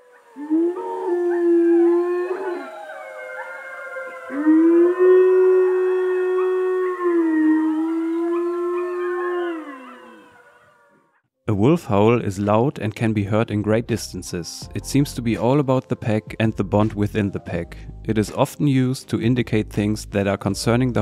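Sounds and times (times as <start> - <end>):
wolf howling: 0.0 - 11.1.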